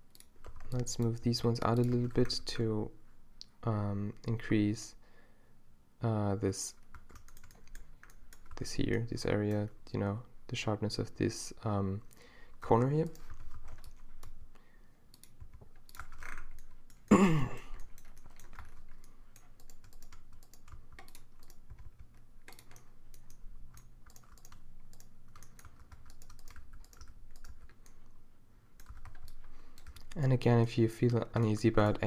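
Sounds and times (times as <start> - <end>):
keyboard and mouse clicking: 0.1 - 2.4, 6.7 - 8.7, 13.1 - 14.4, 15.1 - 17.1, 17.7 - 28.0, 28.8 - 30.2.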